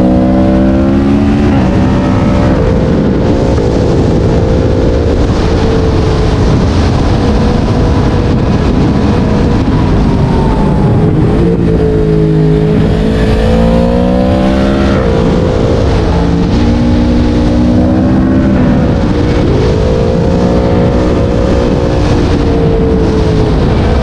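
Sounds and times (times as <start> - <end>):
motorcycle engine running loud: 0.0 - 24.0.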